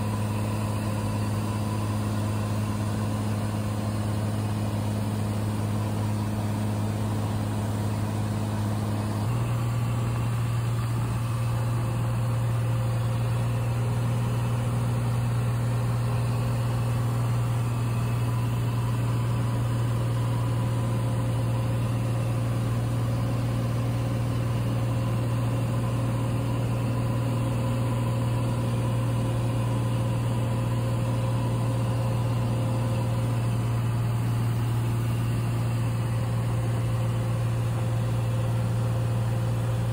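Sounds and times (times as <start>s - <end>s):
airplane engine and propeller drone: 0.0s - 39.9s.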